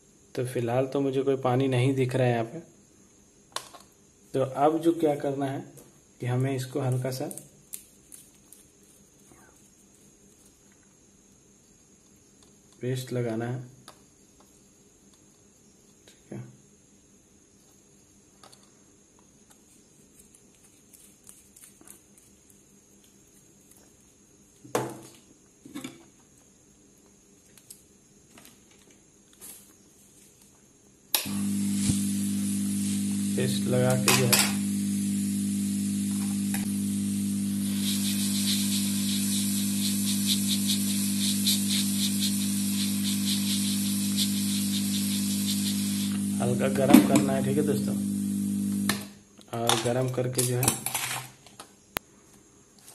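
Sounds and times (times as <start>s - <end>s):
hot air gun blowing: 31.2s - 48.9s.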